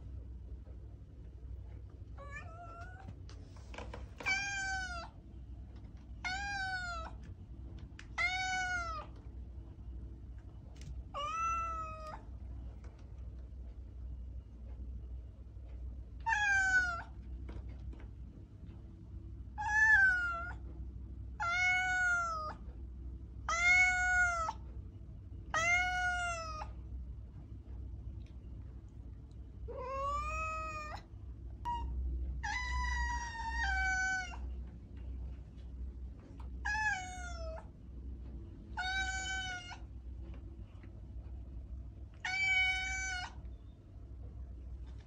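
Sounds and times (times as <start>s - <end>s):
cat meowing: 2.2s - 3.1s, 4.2s - 5.2s, 6.2s - 7.2s, 8.1s - 9.2s, 11.1s - 12.2s, 16.2s - 17.1s, 19.6s - 20.6s, 21.4s - 22.6s, 23.5s - 24.6s, 25.5s - 26.7s, 29.7s - 31.1s, 31.7s - 34.5s, 36.6s - 37.7s, 38.8s - 39.9s, 42.2s - 43.4s.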